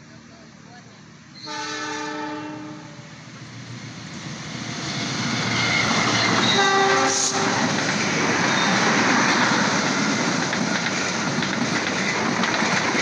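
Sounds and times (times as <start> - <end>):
train passing: 0.0 - 13.0
train horn blast: 1.4 - 3.1, 5.6 - 7.6.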